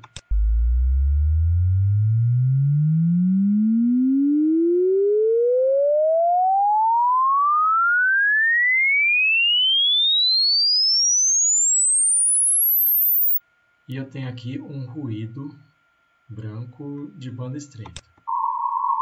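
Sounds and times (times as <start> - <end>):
sine tone sweeping upward: 0.2 - 13.4.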